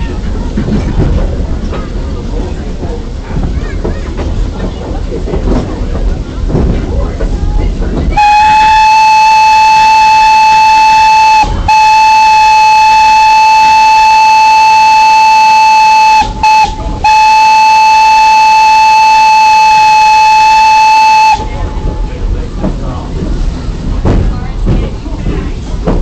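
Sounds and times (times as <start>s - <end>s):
steam locomotive whistle: 8.2s - 21.7s.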